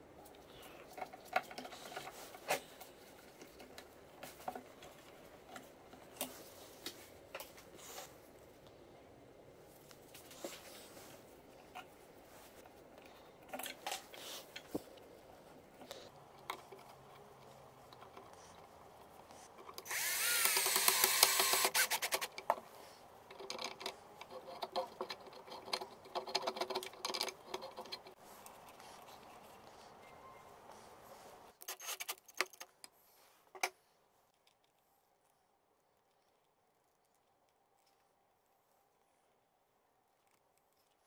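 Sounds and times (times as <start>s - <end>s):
drill driving screw into wood: 19.8s - 22.3s.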